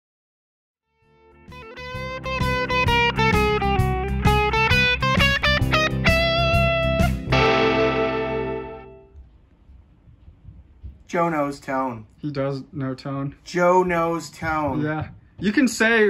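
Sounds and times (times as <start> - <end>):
electric guitar riff: 1.3 - 9.1.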